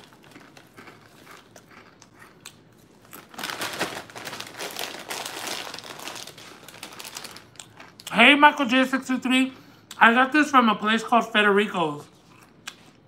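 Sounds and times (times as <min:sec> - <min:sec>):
foil bag crinkling: 0:00.0 - 0:02.1, 0:02.9 - 0:07.9
crunchy chewing of chips: 0:00.0 - 0:08.2, 0:12.0 - 0:13.0.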